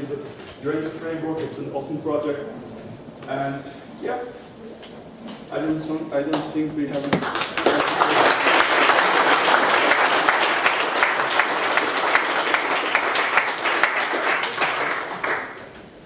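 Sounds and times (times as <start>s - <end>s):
audience applauding: 7.0s - 16.0s.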